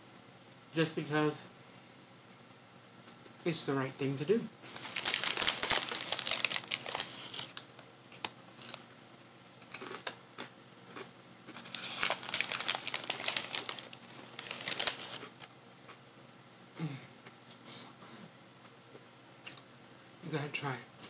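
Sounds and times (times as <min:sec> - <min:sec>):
food packaging crinkling: 0:04.6 - 0:08.9, 0:10.9 - 0:15.5.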